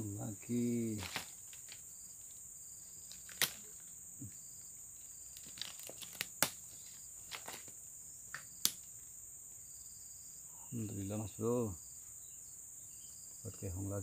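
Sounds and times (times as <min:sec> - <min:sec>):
insects trilling: 0:00.0 - 0:14.0
clicks and crackles of leaves: 0:00.7 - 0:04.3, 0:05.1 - 0:08.9.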